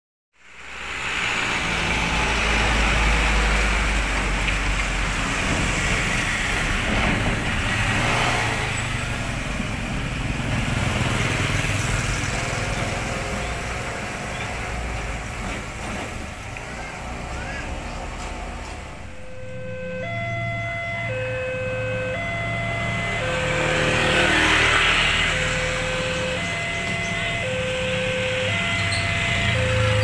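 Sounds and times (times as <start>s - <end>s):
truck engine driving past: 0.7s - 30.0s
motorcycles driving past: 5.0s - 13.9s, 20.0s - 30.0s.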